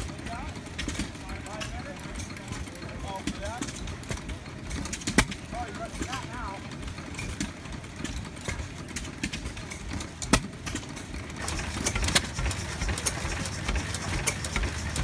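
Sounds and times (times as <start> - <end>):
engine chugging: 0.0 - 15.0
sharp exhaust pops: 3.6 - 6.2, 8.9 - 15.0.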